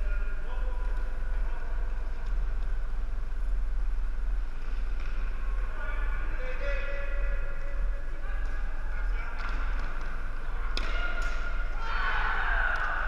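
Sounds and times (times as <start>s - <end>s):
low rumble of gymnasium: 0.0s - 13.0s
distant echoing voices: 5.2s - 13.0s.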